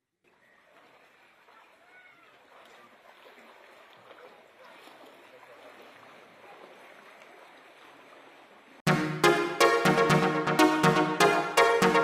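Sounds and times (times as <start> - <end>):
people wading through water: 0.2 - 8.9.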